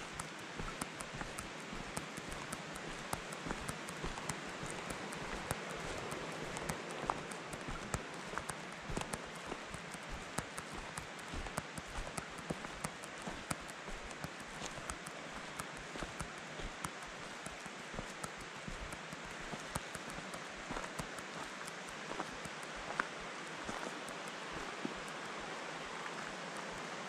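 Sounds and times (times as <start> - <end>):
steady hiss: 0.0 - 27.0
footsteps crunching on gravel: 23.7 - 24.0.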